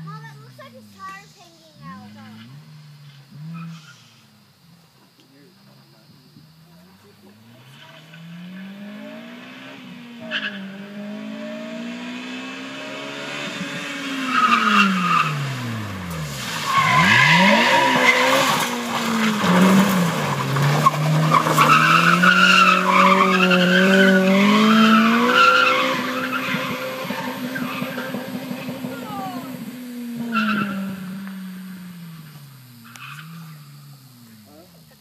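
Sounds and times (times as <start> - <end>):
car engine revving: 0.0 - 35.0
tyres squealing on tarmac: 3.4 - 4.4, 9.4 - 10.7, 14.2 - 35.0.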